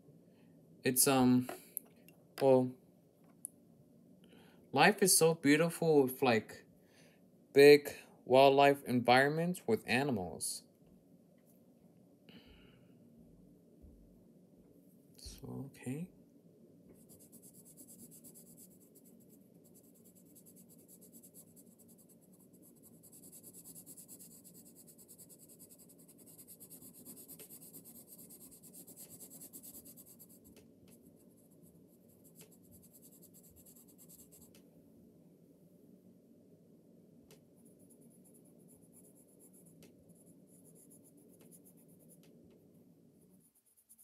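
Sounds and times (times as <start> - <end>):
pencil scratching on paper: 17.0 - 34.6, 37.6 - 42.3, 43.2 - 44.0.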